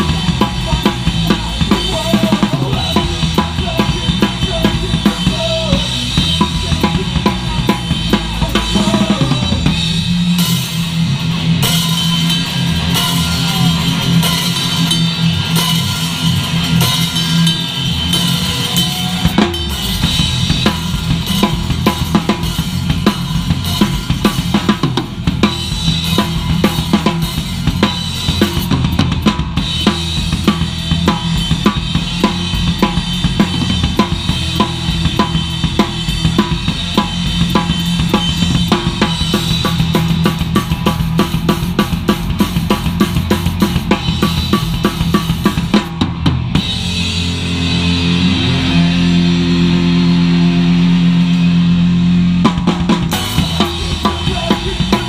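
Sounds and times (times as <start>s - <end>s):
drum kit beat: 0.0s - 55.0s
punk band playing live: 0.0s - 55.0s.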